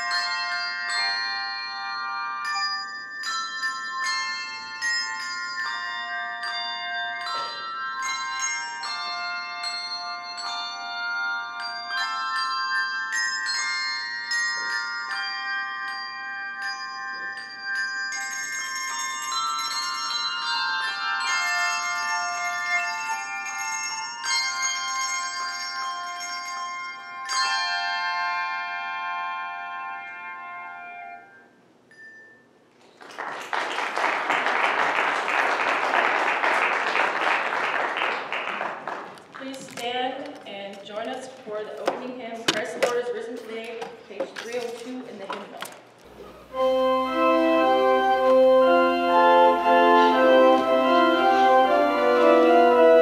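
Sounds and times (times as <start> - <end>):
handbells ringing: 0.0 - 32.9, 46.5 - 53.0.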